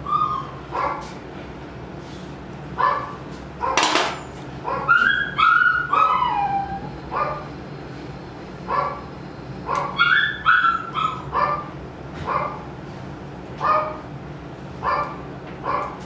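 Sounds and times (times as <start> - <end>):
puppy whining and yelping: 0.0 - 1.0, 4.7 - 7.4, 9.7 - 11.7.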